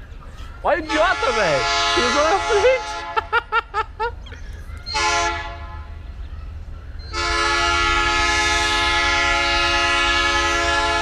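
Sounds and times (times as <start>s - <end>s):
train horn blast: 0.8s - 3.2s, 5.0s - 6.0s, 7.1s - 11.0s.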